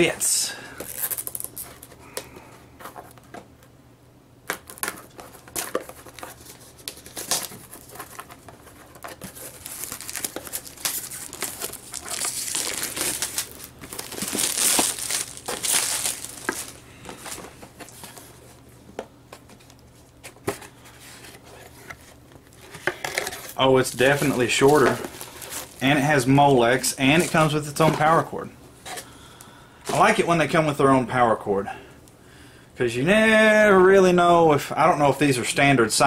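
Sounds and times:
plastic shrink-wrap crinkling and tearing: 0.8 - 1.9, 9.2 - 17.5, 23.3 - 26.0.

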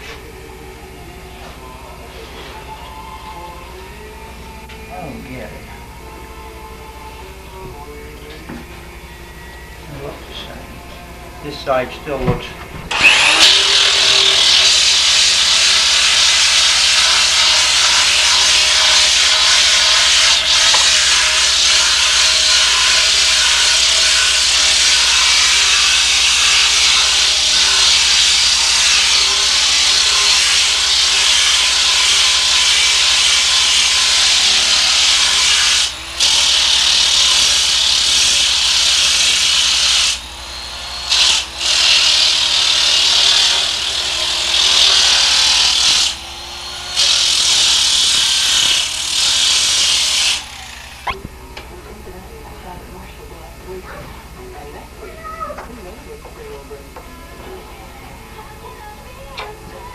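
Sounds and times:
air disc sander grinding wood: 6.8 - 51.6.

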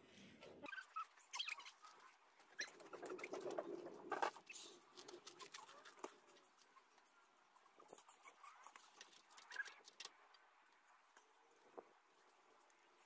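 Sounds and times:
board fanning flapping: 1.9 - 7.0.

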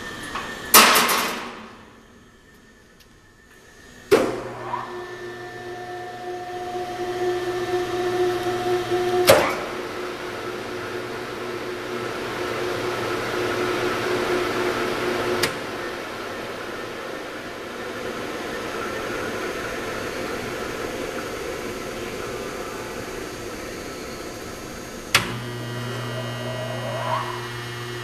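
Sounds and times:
electric mixer motor humming: 4.9 - 15.4, 25.2 - 28.0.

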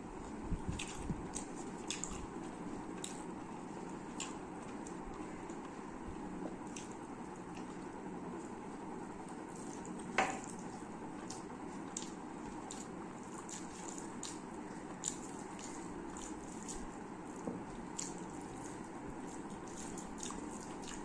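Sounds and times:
wet chewing: 0.7 - 5.8, 6.5 - 8.6, 9.2 - 21.0
fingers mixing rice on plate: 9.2 - 21.0.

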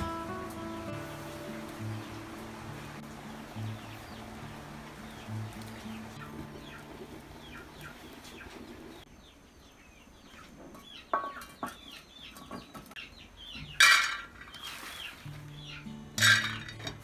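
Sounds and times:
birds chirping: 0.0 - 16.8
metal pan clanking: 13.7 - 14.6, 16.1 - 17.0.

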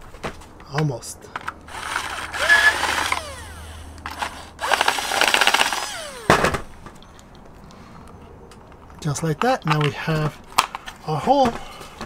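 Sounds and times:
power drill drilling: 1.7 - 6.7.

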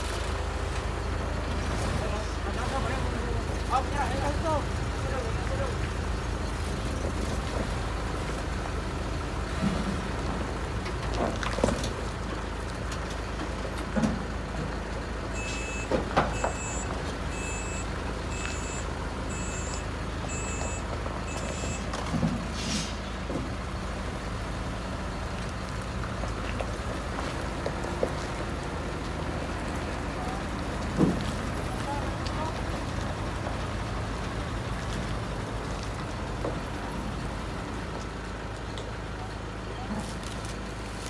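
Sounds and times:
diesel truck engine running: 0.0 - 41.0
reversing alarm beeps: 15.4 - 21.9
knocks and clunks: 15.5 - 17.1, 20.6 - 22.5, 30.8 - 31.5
air brakes hiss: 22.5 - 23.1.

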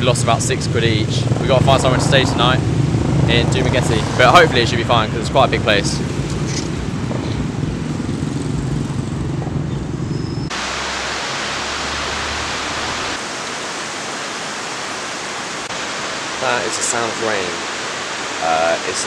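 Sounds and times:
street traffic rumble: 0.0 - 19.0
heavy rain pouring: 10.5 - 19.0.

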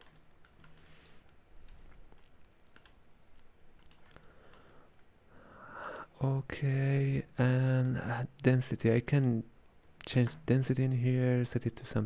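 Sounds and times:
computer mouse clicks: 0.0 - 3.0, 3.8 - 5.1.

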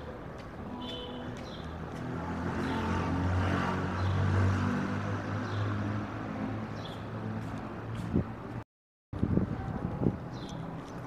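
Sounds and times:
vehicle engine passing by: 2.0 - 8.3.

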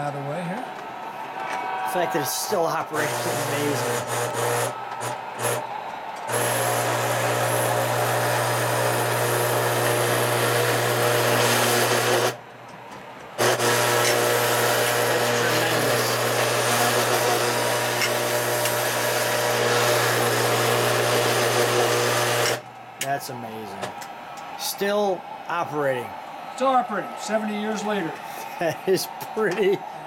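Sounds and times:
toy electric motor and gears whirring: 13.5 - 22.6.

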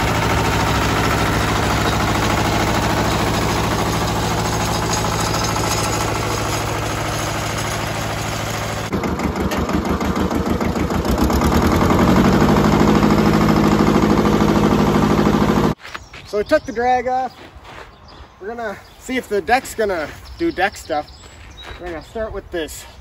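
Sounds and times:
tractor diesel engine running: 0.0 - 15.8.

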